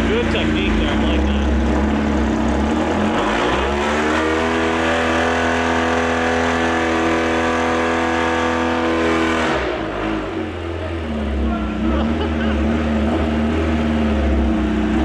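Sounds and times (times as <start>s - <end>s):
motorcycle engine revving hard: 0.0s - 15.0s.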